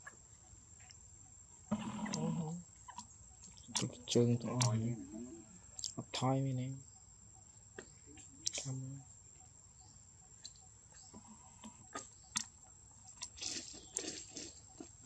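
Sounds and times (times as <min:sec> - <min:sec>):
man speaking: 0:03.7 - 0:06.8, 0:08.5 - 0:09.1.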